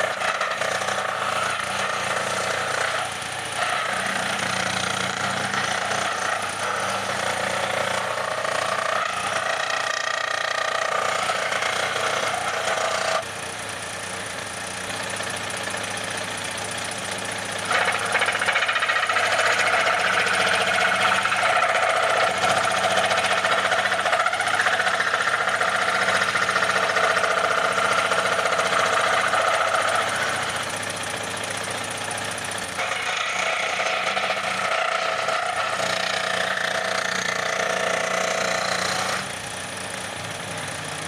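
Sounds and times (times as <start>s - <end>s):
power saw cutting bamboo: 0.0s - 41.0s.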